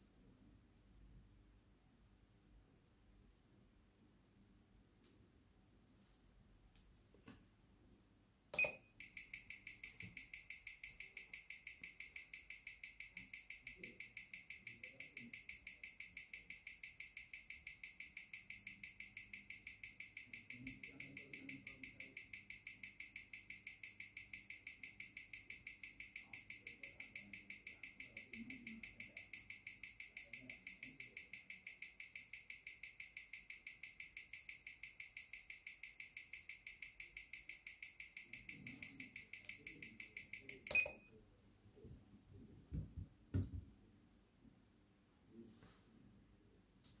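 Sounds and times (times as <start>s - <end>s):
amplified watch ticking: 8.6s - 41.1s.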